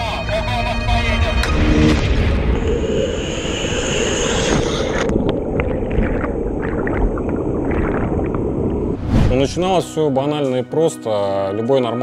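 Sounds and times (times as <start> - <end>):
underwater bubbling: 3.9 - 9.3
water rushing and churning: 4.0 - 9.7.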